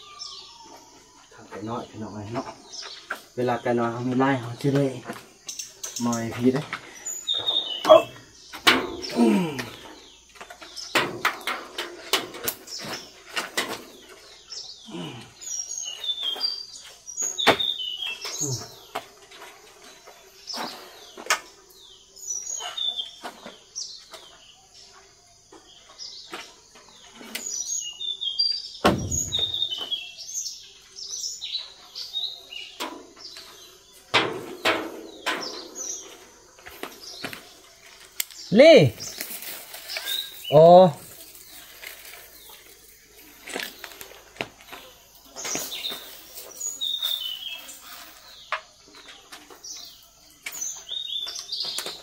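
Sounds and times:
small birds chirping: 0:00.0 - 0:52.0
heavy thump: 0:28.8 - 0:29.7
wooden crate knocking and clattering: 0:28.8 - 0:30.0.

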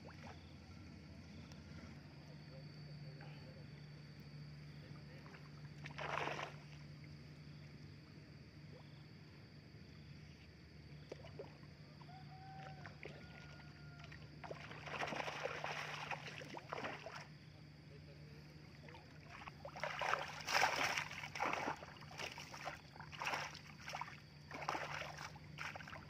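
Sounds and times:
faint steady hum: 0:00.0 - 0:26.0
water splashing off net: 0:05.9 - 0:06.6, 0:14.4 - 0:17.2, 0:19.4 - 0:26.0.

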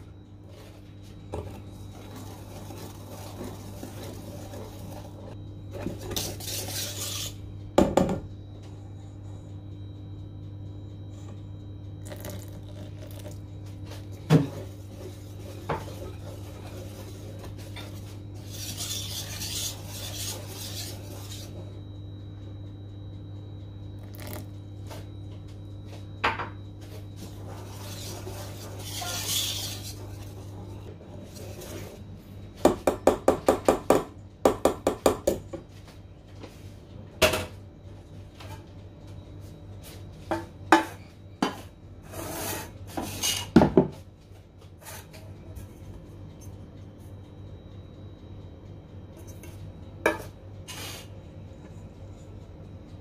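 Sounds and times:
whisk clinking against metal bowl: 0:17.8 - 0:21.6, 0:27.7 - 0:30.0.

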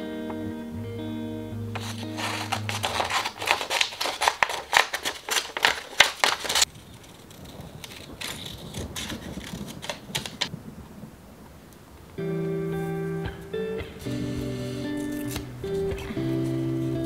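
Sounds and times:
background music: 0:00.0 - 0:03.6, 0:12.2 - 0:17.0
scissors cutting paper: 0:01.8 - 0:10.5, 0:14.1 - 0:17.0.

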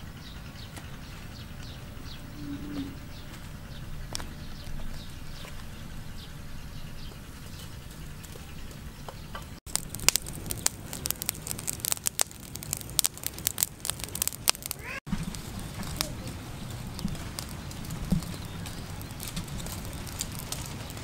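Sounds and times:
charcoal crackling and popping: 0:03.3 - 0:06.0, 0:07.1 - 0:21.0.

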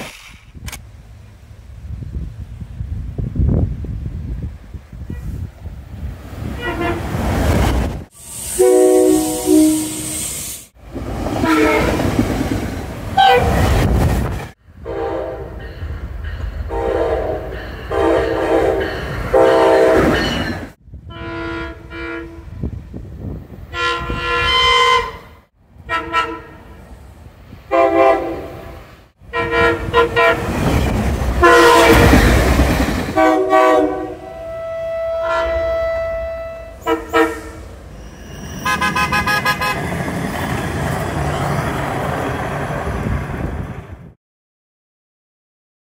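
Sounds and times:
trains rumbling past: 0:00.9 - 0:44.2
train chime horn blasts: 0:08.4 - 0:10.4, 0:14.8 - 0:15.6, 0:16.7 - 0:20.4, 0:29.3 - 0:30.5, 0:31.4 - 0:32.2, 0:33.2 - 0:39.8.

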